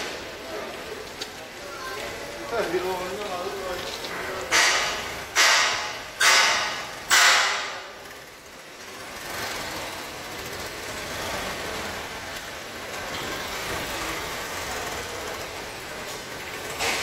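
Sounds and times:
rushing machinery noise: 0:00.0 - 0:17.0.

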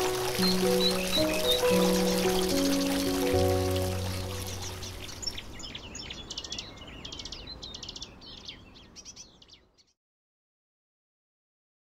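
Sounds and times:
fountain water splashing: 0:00.0 - 0:05.8
small birds chirping: 0:00.0 - 0:10.0.

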